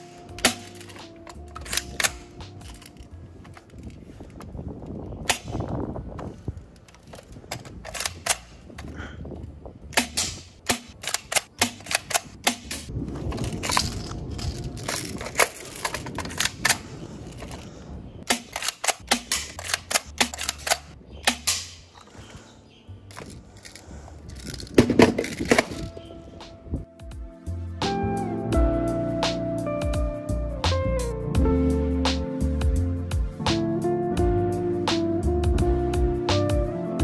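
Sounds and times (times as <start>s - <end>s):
gun handling rattle: 0.0s - 9.0s, 9.9s - 22.2s, 23.1s - 26.0s
airsoft gun shots cracking: 10.0s - 12.9s, 18.2s - 21.9s.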